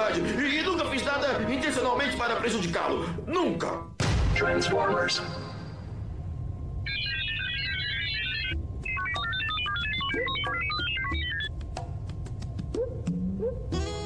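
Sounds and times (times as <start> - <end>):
low steady hum: 4.8 - 14.0
electronic beeps and chirps: 6.8 - 11.5.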